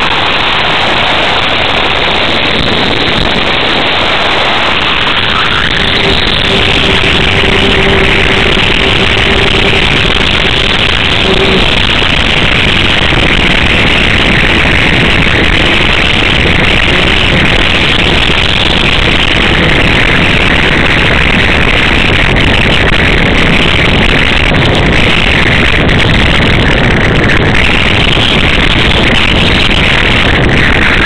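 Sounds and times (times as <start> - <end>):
wind rushing over microphone: 0.0 - 31.0
electric motor and propeller hum: 2.6 - 22.8.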